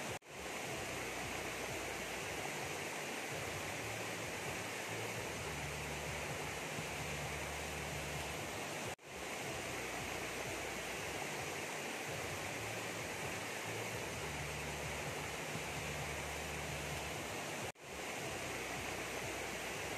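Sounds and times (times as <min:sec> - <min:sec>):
steady rushing noise: 0:00.0 - 0:19.9.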